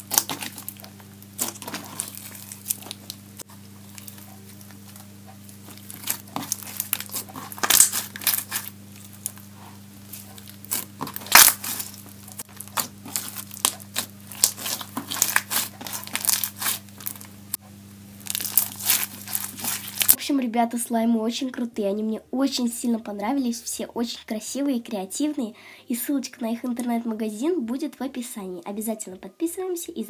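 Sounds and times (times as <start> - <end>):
slime crunching and crackling: 0.0 - 17.5, 18.2 - 20.2
faint steady hum: 0.0 - 30.0.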